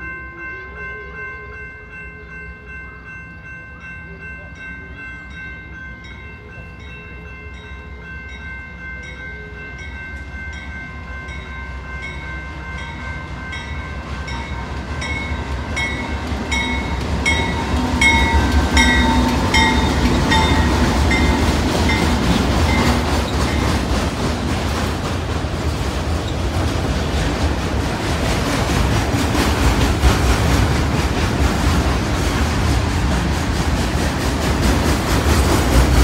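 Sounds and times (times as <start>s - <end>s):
crossing bell ringing: 0.0s - 36.0s
diesel locomotive engine rumble: 0.0s - 36.0s
train wheel noise: 8.7s - 36.0s.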